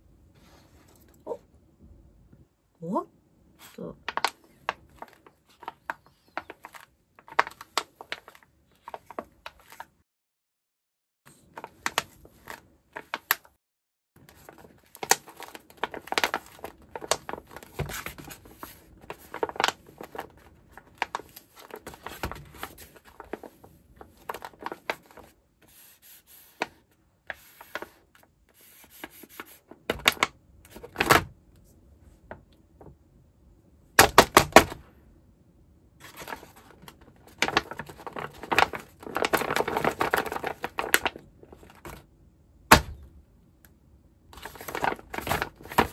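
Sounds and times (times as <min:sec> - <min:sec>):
stiff paper sheet crinkling: 0:04.1 - 0:10.0, 0:11.3 - 0:13.6, 0:14.2 - 0:31.2, 0:36.0 - 0:42.0, 0:44.4 - 0:45.9.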